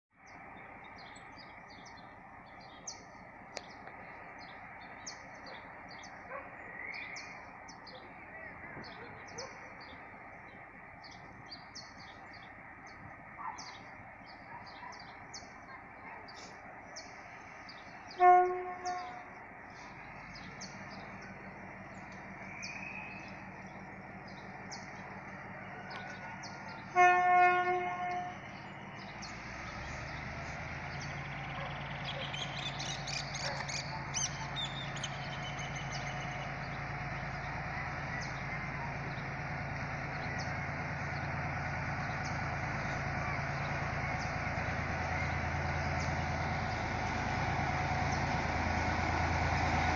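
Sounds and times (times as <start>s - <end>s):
birds chirping: 0.2s - 49.9s
diesel engine droning: 0.2s - 49.9s
train horn blasts: 18.1s - 19.4s, 26.7s - 28.6s.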